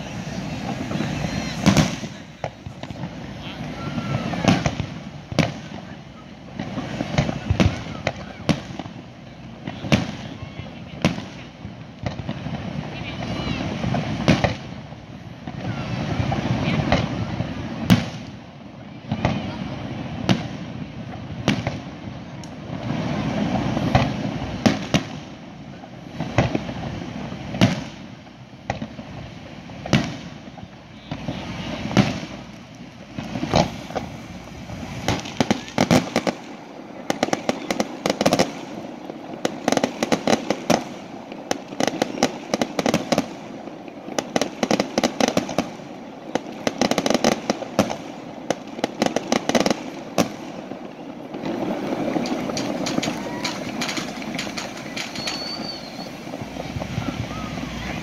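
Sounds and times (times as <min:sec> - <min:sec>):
firework shells bursting: 0:00.0 - 0:10.3, 0:26.2 - 0:58.0
rapid firework crackling: 0:00.0 - 0:58.0.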